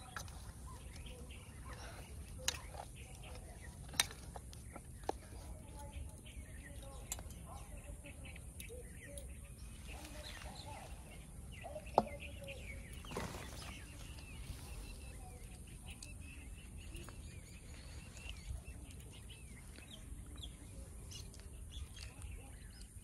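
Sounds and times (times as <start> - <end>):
small birds chirping: 0.0 - 23.0
brief rustle: 13.0 - 15.1.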